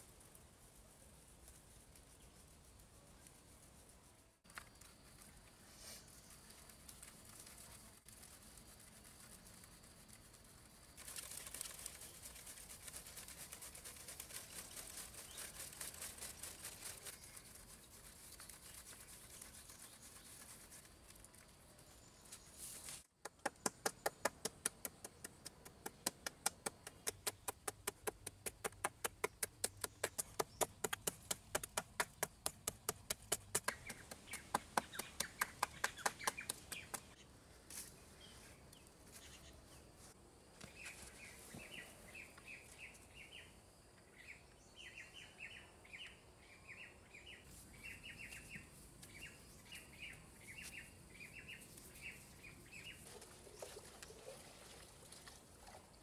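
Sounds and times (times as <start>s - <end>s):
sand sifting through sieve: 0.0s - 23.1s, 26.0s - 38.6s
stone clicking on cement floor: 23.2s - 37.2s.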